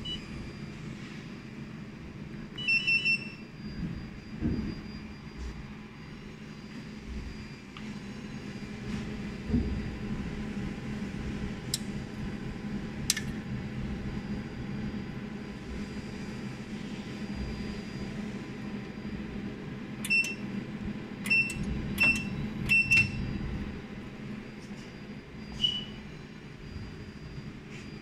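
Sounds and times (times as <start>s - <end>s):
high-pitched beeping clicks: 21.2s - 23.2s.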